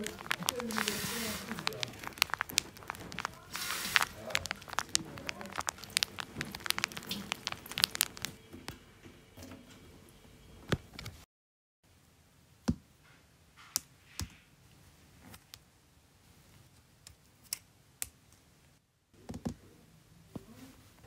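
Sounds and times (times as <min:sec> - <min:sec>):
plastic building pieces clicking: 0:00.0 - 0:08.4.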